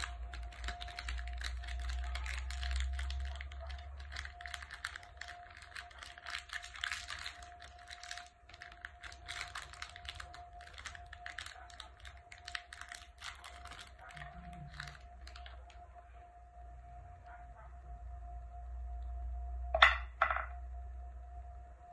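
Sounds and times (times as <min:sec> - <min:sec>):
plastic wrapper crinkling: 0:00.0 - 0:15.9.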